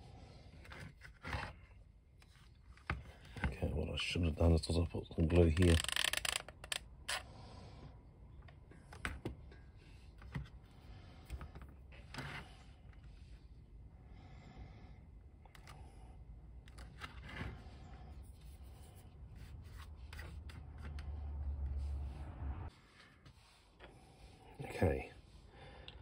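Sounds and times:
plastic toy parts clicking: 5.5s - 7.2s
low hum: 21.0s - 22.7s.

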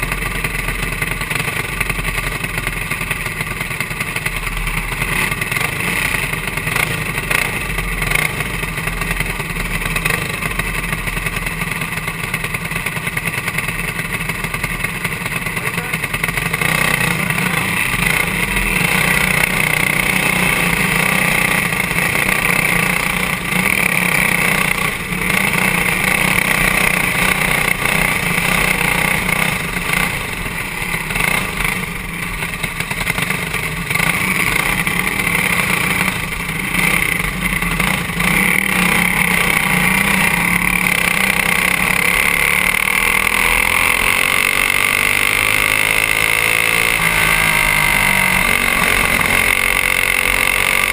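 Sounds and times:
kart engine running hard: 0.0s - 50.9s.

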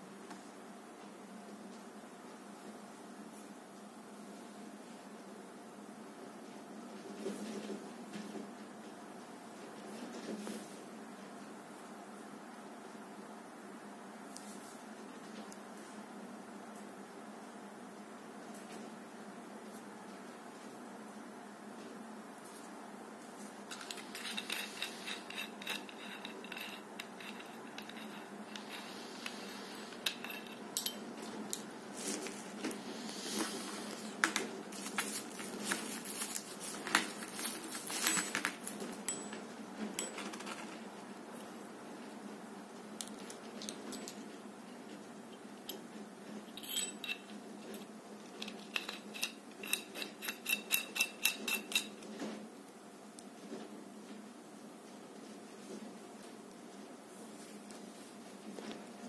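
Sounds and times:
plastic wrapping crinkling: 34.7s - 38.8s
metal baton clinking: 39.1s - 40.1s.

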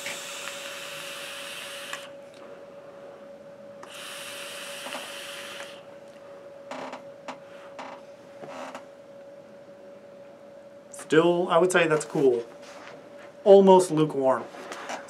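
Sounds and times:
hissing vape draws: 0.0s - 2.1s, 3.8s - 5.8s.

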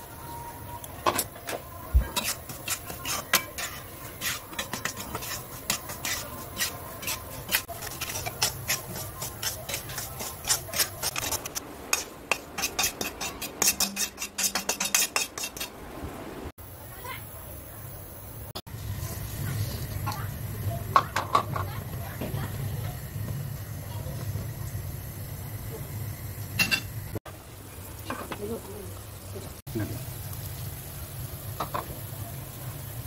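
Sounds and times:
utensil scraping a wok: 1.0s - 15.8s.

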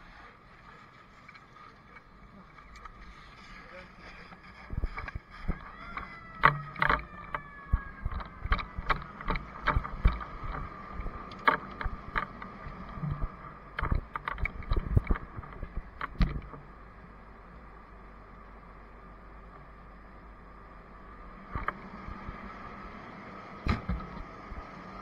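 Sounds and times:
knocks and clunks: 4.7s - 16.6s, 23.6s - 24.3s.

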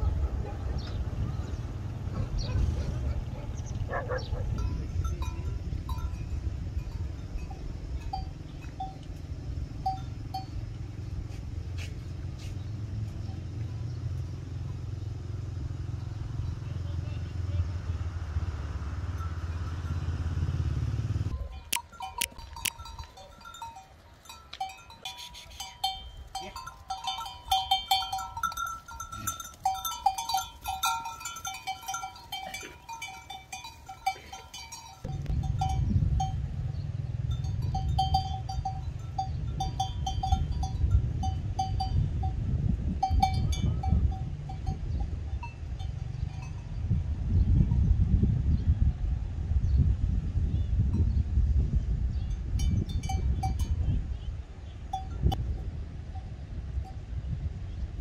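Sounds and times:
animal bells clinking: 3.4s - 11.4s, 12.2s - 16.8s, 19.1s - 20.2s, 21.3s - 47.0s, 52.1s - 57.0s.

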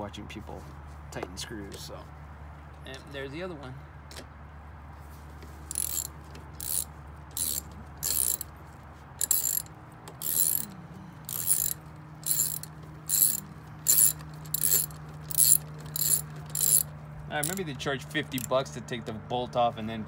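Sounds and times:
socket ratchet clicking: 5.7s - 8.5s, 9.2s - 17.6s.

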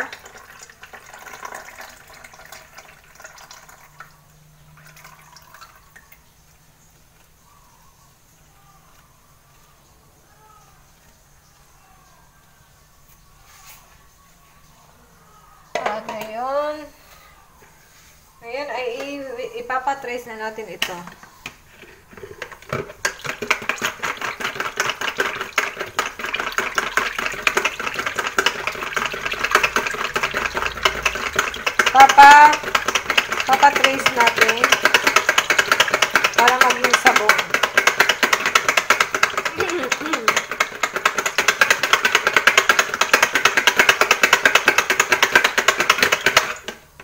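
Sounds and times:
blender head rattling on plastic: 0.0s - 4.0s, 21.0s - 47.0s
stick blender running: 21.8s - 46.8s.

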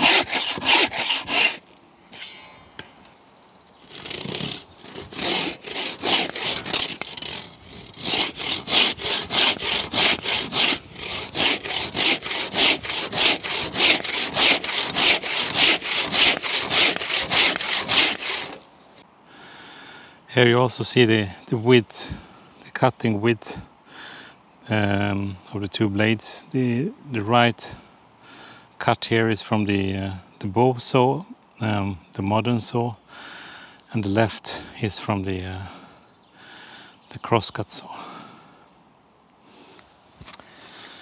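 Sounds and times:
hand saw cutting log: 0.0s - 1.6s, 3.8s - 18.6s.

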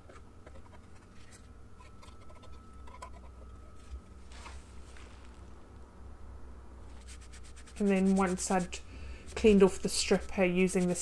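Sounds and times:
scraper scratching wood: 7.0s - 11.0s.

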